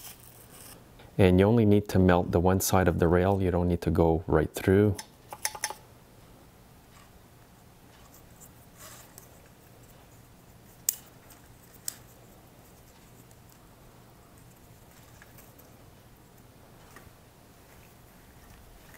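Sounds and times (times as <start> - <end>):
faint low hum: 0.0 - 18.9.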